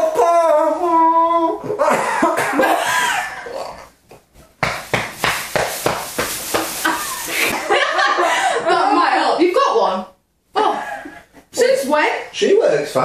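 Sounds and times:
sharp rapid coughs: 1.9s - 3.3s
people laughing: 6.8s - 8.9s.

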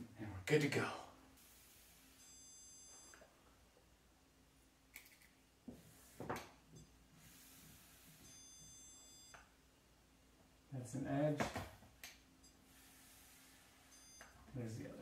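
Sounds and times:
stud finder beeping: 2.1s - 3.3s, 6.7s - 9.6s, 13.8s - 14.5s.

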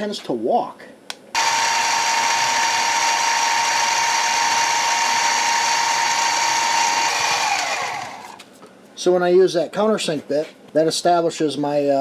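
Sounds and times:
bit cutting metal: 1.4s - 8.4s
mill spindle whining: 1.4s - 8.4s.

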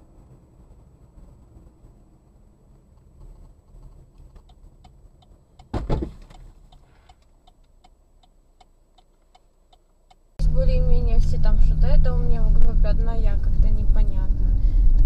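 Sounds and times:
low road rumble: 0.0s - 15.0s
turn signal ticking: 2.6s - 13.3s
loud thump: 5.7s - 6.2s.

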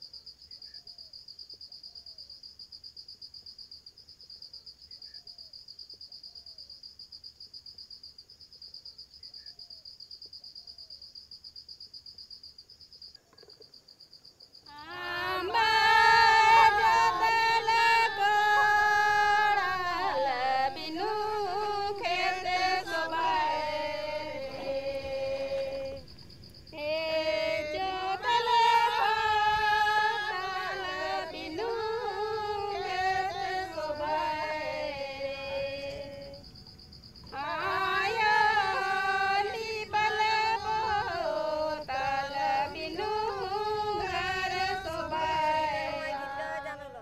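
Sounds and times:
woman singing: 14.7s - 26.0s, 26.8s - 36.4s, 37.3s - 47.0s.

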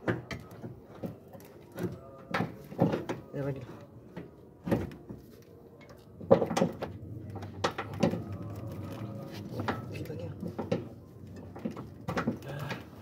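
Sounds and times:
metal clanks and knocks: 6.2s - 13.0s.

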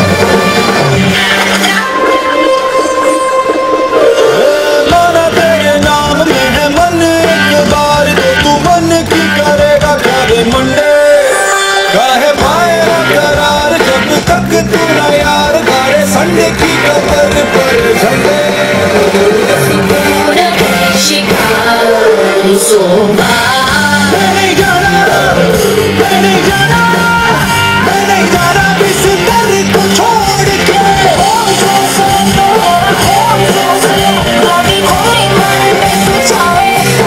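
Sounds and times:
loud song with singing and beat: 0.0s - 37.0s.

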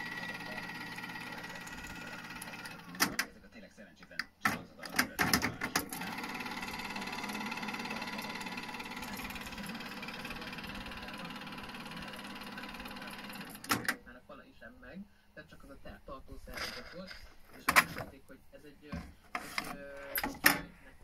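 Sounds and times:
tape rewinding whirr: 0.0s - 3.5s, 4.2s - 14.1s
cassette transport clack: 2.2s - 3.3s, 4.1s - 6.0s, 16.6s - 18.2s.

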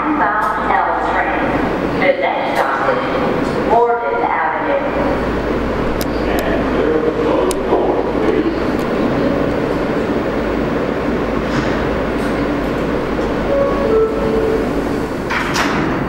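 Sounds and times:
subway train hum and rumble: 0.0s - 16.0s.

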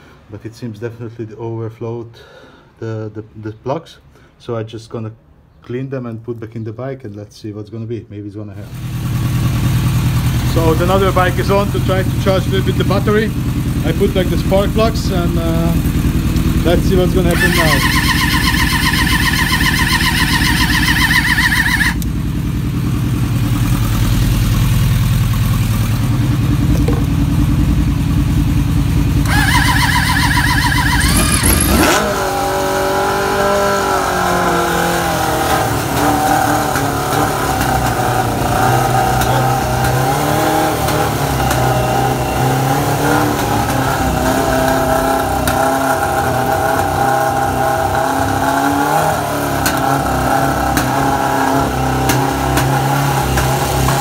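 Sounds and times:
motorcycle engine running: 8.6s - 54.0s
motorcycle engine idling: 8.7s - 31.9s
electric starter cranking: 15.8s - 22.1s, 29.2s - 47.6s.

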